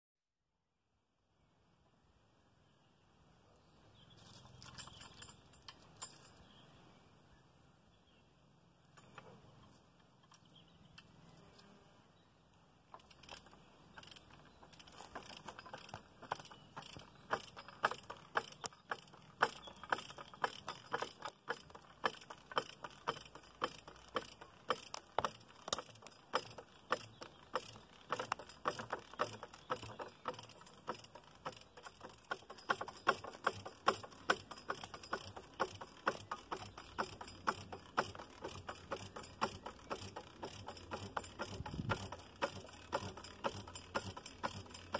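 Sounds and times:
ratchet jack clicking: 12.9s - 44.9s.

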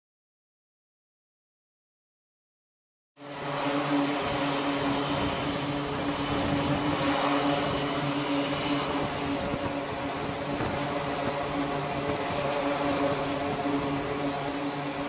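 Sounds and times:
turboprop engines droning: 3.2s - 15.0s.

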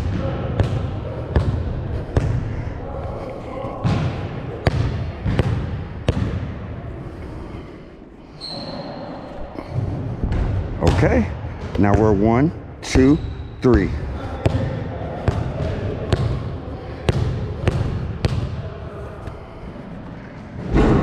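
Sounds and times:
basketball bouncing on gym floor: 0.0s - 2.4s, 3.8s - 6.5s, 17.1s - 18.6s
shoe squeak: 8.3s - 9.3s.

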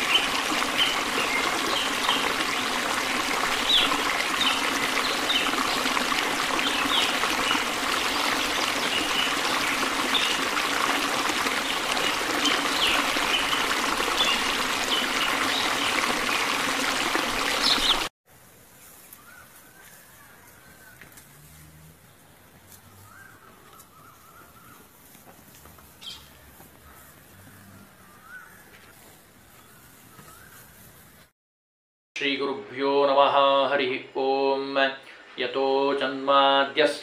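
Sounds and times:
stream rushing over rocks: 0.0s - 18.1s.

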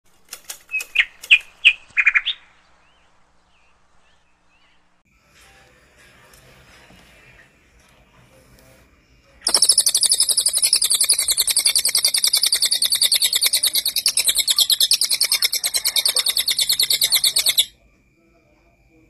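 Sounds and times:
bird singing sharp high notes: 9.4s - 17.7s.

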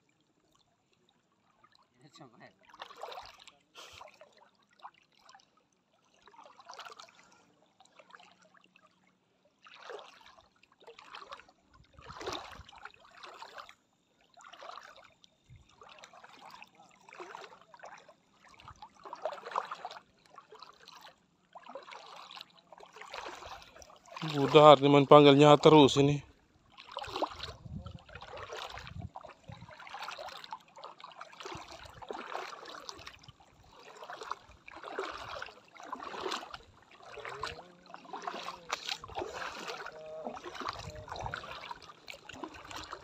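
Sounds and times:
water splashing from wading: 1.2s - 43.0s.

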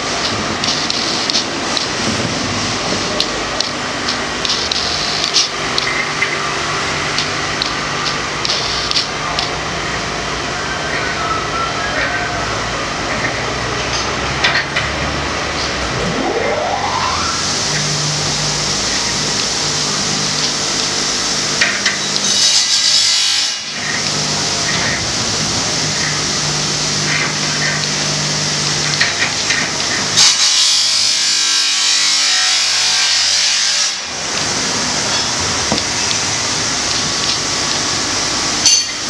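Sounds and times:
steady machine hum: 0.0s - 30.2s, 34.0s - 39.0s.

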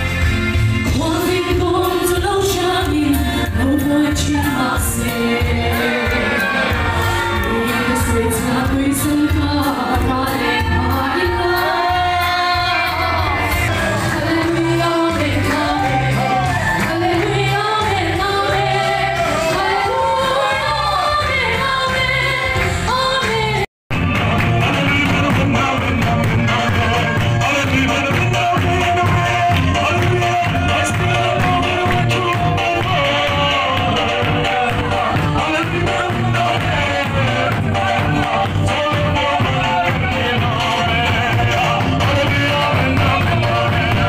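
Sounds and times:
steady drum beat: 0.0s - 22.8s, 23.9s - 44.0s
woman singing into microphone: 0.9s - 23.7s
congregation singing: 0.9s - 44.0s.

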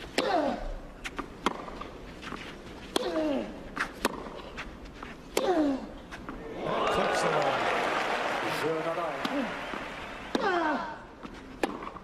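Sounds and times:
racket hitting tennis ball: 1.2s - 1.9s, 2.9s - 4.4s, 11.6s - 12.0s.

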